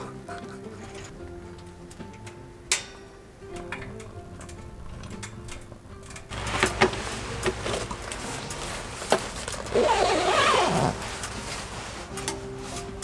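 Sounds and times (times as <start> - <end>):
sleeping bag rustling: 4.5 - 13.0.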